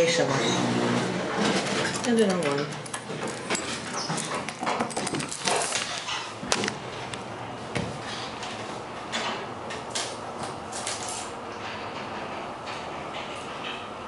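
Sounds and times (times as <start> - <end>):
elevator rattling clicks and knocks: 1.4 - 6.9.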